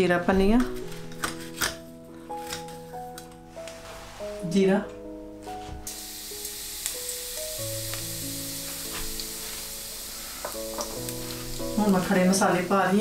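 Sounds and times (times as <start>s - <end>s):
seeds sizzling in hot oil: 5.9s - 13.0s.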